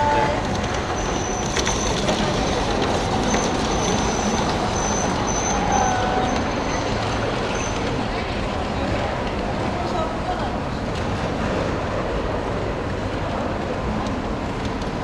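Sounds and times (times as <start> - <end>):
model train wheels rumbling: 0.0 - 9.8.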